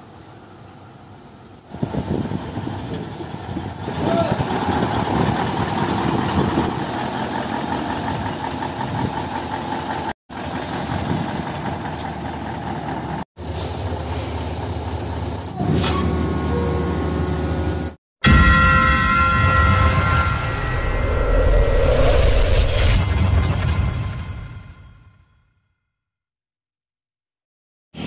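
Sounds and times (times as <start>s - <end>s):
diesel engine idling: 2.6s - 15.6s.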